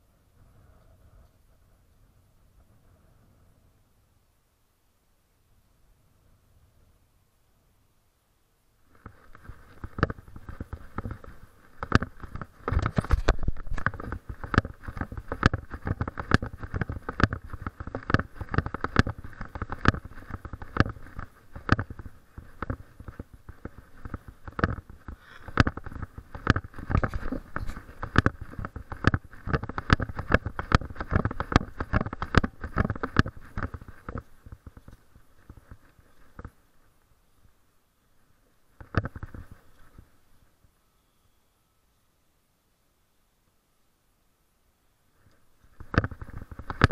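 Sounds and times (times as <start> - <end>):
body-worn camera knocking: 9.0 - 34.9, 45.8 - 46.9.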